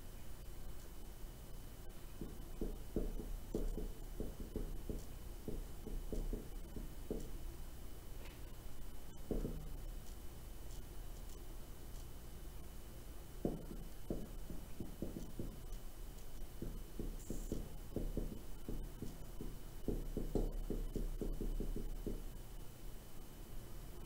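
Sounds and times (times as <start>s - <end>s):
faint steady hum: 0.0s - 24.0s
marker writing on whiteboard: 2.2s - 7.4s, 9.1s - 12.1s, 13.4s - 22.3s.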